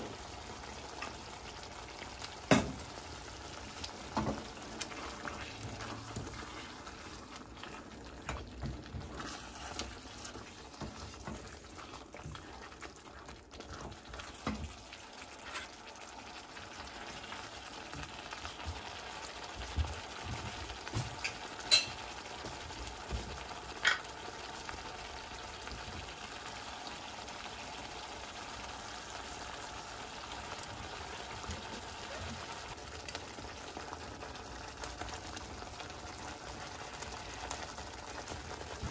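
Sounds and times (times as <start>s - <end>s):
sauce simmering and spluttering: 0.0s - 38.9s
spatula scraping a wok: 4.2s - 8.4s, 15.3s - 15.8s.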